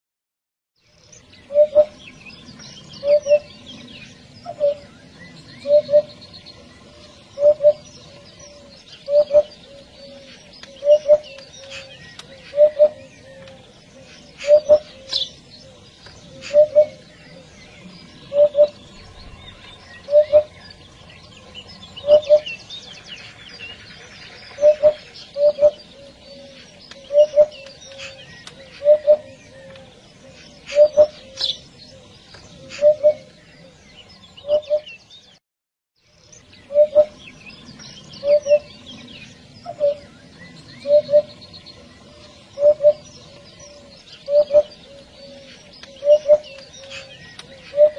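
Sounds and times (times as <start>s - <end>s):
small birds chirping: 0.8s - 35.4s, 36.0s - 47.9s
hoopoe calling: 1.4s - 2.1s, 3.0s - 5.0s, 5.6s - 33.8s, 36.6s - 37.3s, 38.2s - 47.9s.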